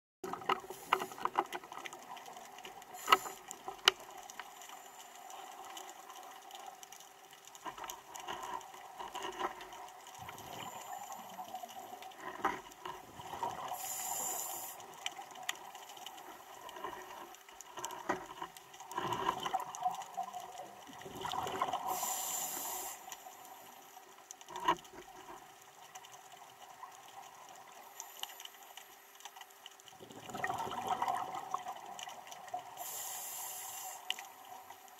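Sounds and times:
faint steady hum: 0:00.3 - 0:34.9
exhaled bubbles rushing: 0:21.0 - 0:21.9, 0:30.0 - 0:31.9.

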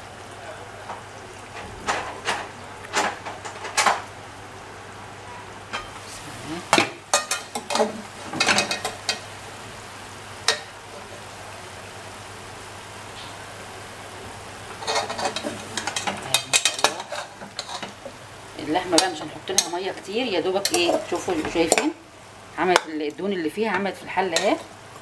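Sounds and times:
metal spoon scraping a pot: 0:14.8 - 0:18.0
pot lid clanking: 0:14.8 - 0:18.0.

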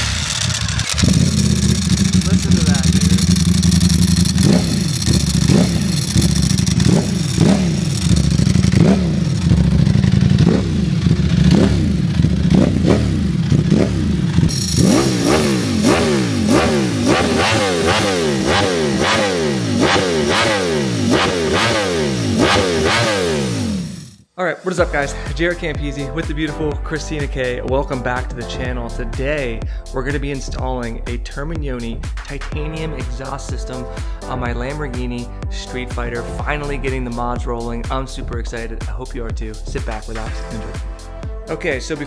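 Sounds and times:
motorcycle engine revving: 0:00.0 - 0:24.3.

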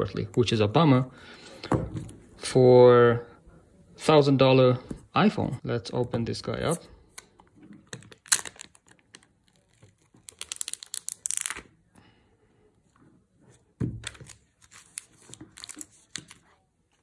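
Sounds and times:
plastic wrap crinkling: 0:08.0 - 0:11.7, 0:14.2 - 0:16.5.

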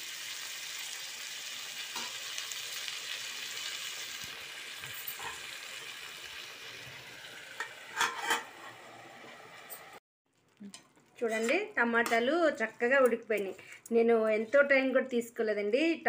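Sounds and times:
vegetables sizzling in oil: 0:00.0 - 0:14.9
steel spoon stirring in pan: 0:04.8 - 0:05.9, 0:07.6 - 0:08.9, 0:10.6 - 0:13.9
steel lid clanking on pan: 0:04.9 - 0:05.5, 0:07.6 - 0:08.9.

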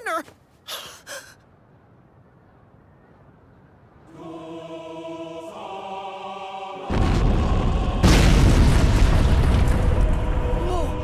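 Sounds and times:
ominous choir-like chord: 0:04.1 - 0:11.0
loud boom: 0:06.9 - 0:11.0.

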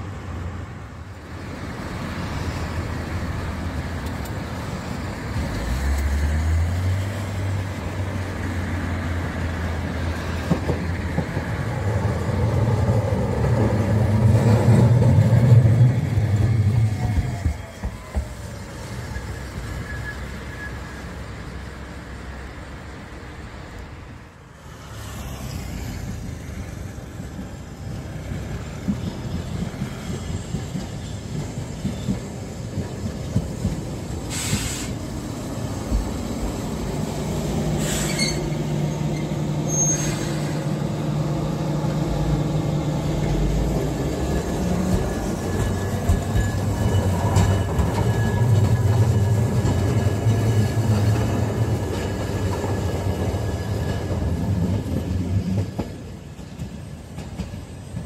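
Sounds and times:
tram wheels on rail: 0:00.0 - 0:58.0
tram motor hum: 0:26.1 - 0:57.6.

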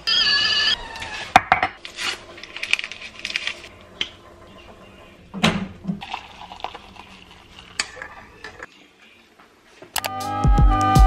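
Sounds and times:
wrapper crinkling: 0:01.8 - 0:03.7.

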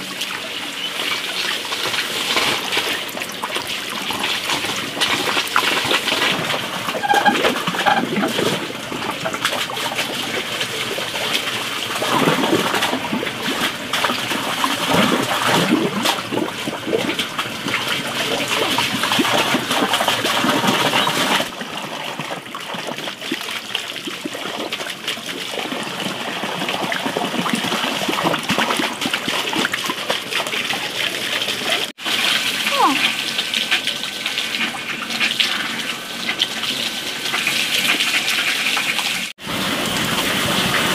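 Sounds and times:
leaves splashing in water: 0:00.0 - 0:21.5
water running from a tap: 0:00.0 - 0:40.9.

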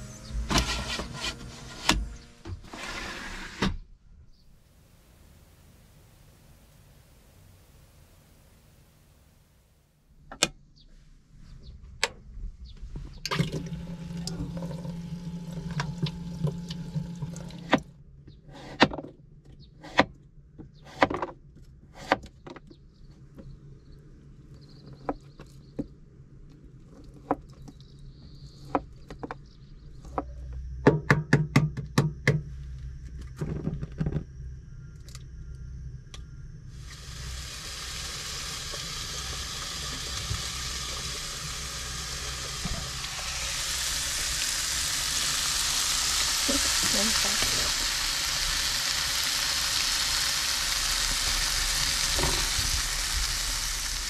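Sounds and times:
water running from a tap: 0:13.3 - 0:17.7, 0:36.8 - 0:54.0
food sizzling in a pan: 0:36.8 - 0:54.0.

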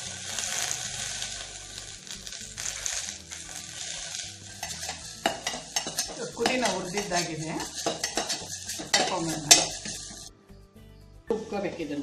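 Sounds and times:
leaves sizzling in a pot: 0:00.0 - 0:10.4
spoon clinking against pot: 0:04.6 - 0:10.3.

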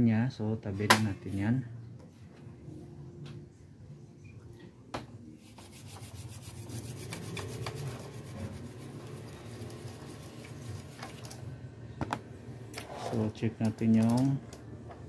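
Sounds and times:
brush scrubbing circuit board: 0:05.4 - 0:11.2.

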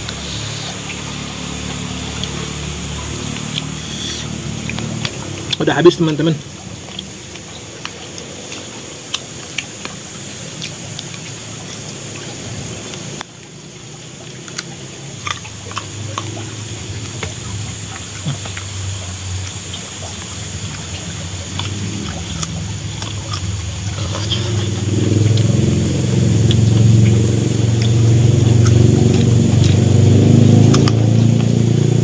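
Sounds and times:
mouth clicks and smacks eating: 0:00.0 - 0:31.7
low hum: 0:00.0 - 0:32.0
background hiss: 0:03.3 - 0:04.4.

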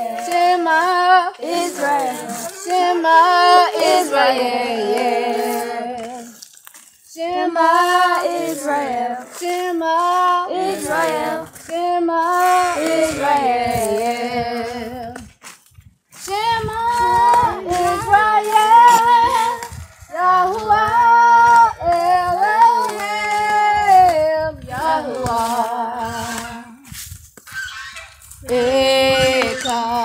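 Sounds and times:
high-pitched voice singing: 0:01.3 - 0:06.4, 0:10.8 - 0:15.2, 0:16.3 - 0:26.9, 0:28.5 - 0:30.0.

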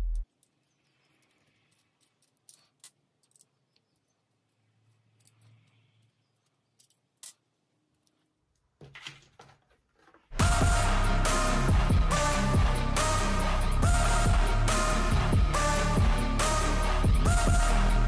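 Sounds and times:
small metal parts clicking: 0:00.2 - 0:08.3.

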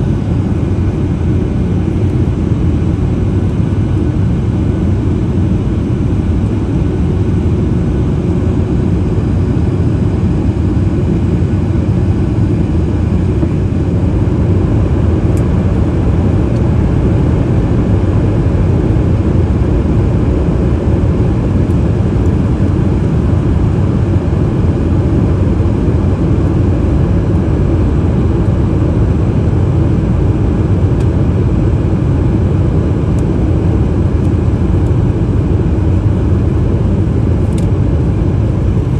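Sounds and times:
airliner cabin rumble: 0:00.0 - 0:38.9.

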